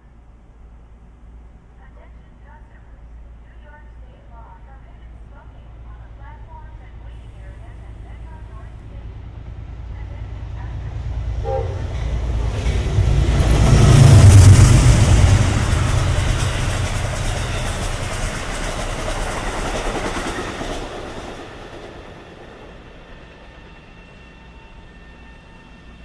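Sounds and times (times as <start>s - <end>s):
diesel locomotive passing: 0.0s - 26.0s
train wheels clicking over rail joints: 11.8s - 23.6s.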